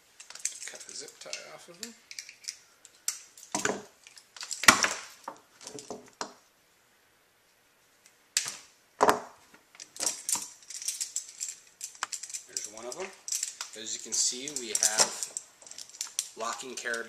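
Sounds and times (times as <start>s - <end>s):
metal clicks and rattles: 0.2s - 5.0s, 9.8s - 17.0s.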